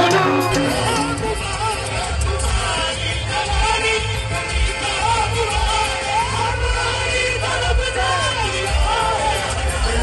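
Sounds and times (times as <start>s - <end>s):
sung melody: 0.0s - 2.4s
heavy drum beat: 0.0s - 8.0s.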